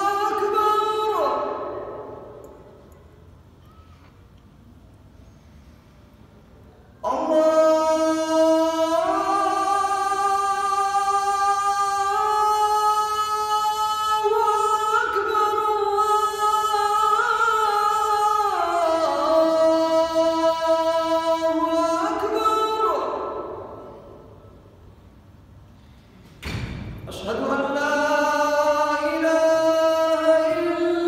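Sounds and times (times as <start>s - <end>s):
man chanting call to prayer: 0.0s - 2.5s, 7.0s - 24.4s, 27.1s - 31.0s.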